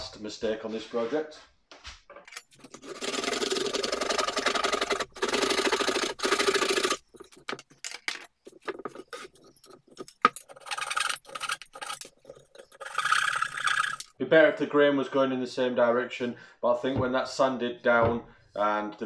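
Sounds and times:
hand saw cutting hardwood: 0:02.7 - 0:07.1
chisel scraping and knocking: 0:06.8 - 0:14.1.

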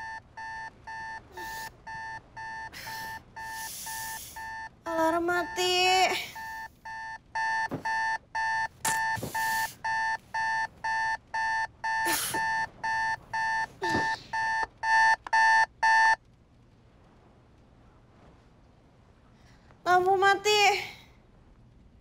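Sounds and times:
phone alarm beeping: 0:00.0 - 0:16.2
bedding rustling: 0:06.4 - 0:11.2.

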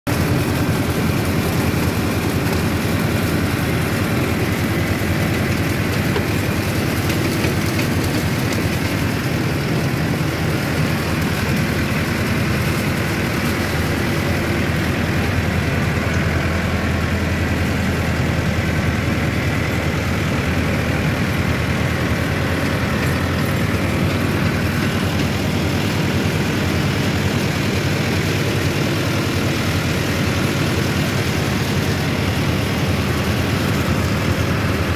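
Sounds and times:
tractor diesel engine running: 0:00.1 - 0:34.9.

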